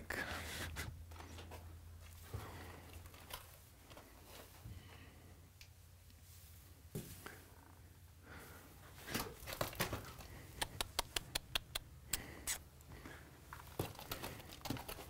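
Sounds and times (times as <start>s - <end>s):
horse hooves on gravel: 13.5s - 15.0s.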